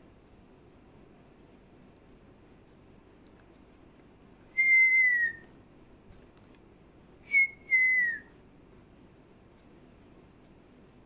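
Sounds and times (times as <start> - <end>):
parrot whistling: 4.6 - 5.5.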